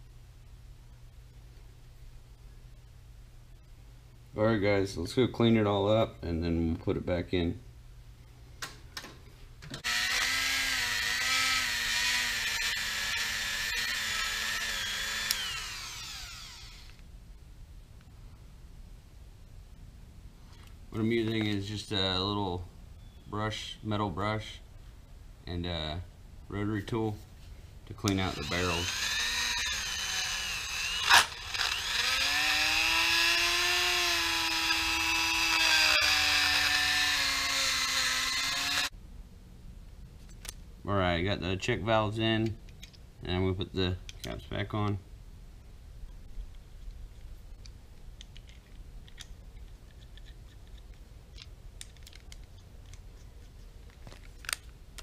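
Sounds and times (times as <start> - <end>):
rotary tool whining: 9.8 - 17.0, 28.1 - 38.9.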